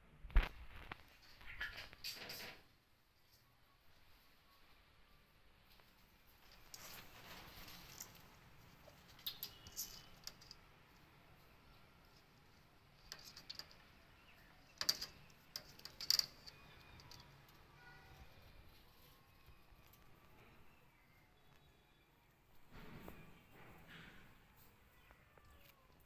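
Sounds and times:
claws scratching mesh screen: 12.9 - 13.9, 14.7 - 17.4.

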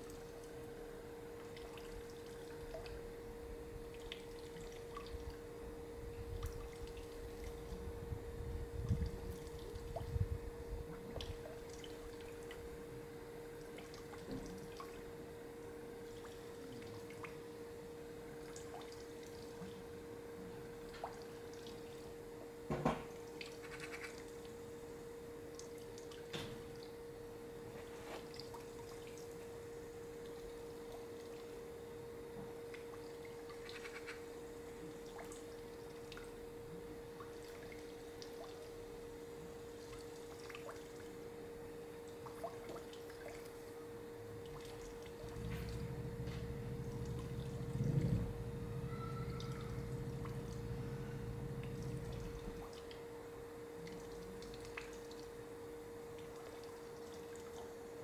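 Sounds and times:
low hum: 28.5 - 58.0.

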